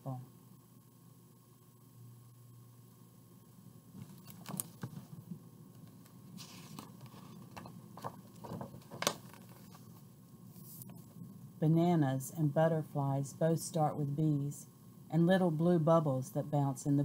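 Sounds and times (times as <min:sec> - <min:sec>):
page turning swish: 0:06.4 - 0:07.2
paper rustling: 0:06.4 - 0:11.0.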